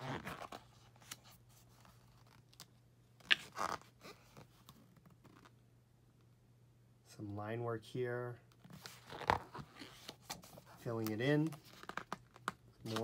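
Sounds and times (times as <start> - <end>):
paper rustling: 8.7 - 13.0.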